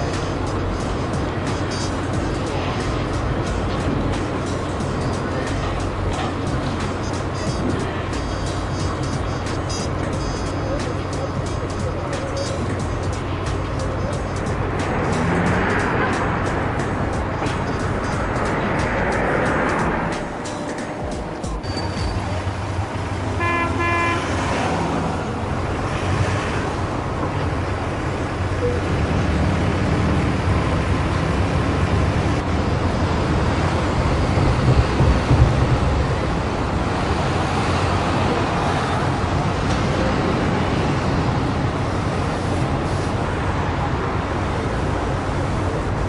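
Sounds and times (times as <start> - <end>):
traffic rumble: 0.0 - 46.0
car horn toots: 23.3 - 24.4.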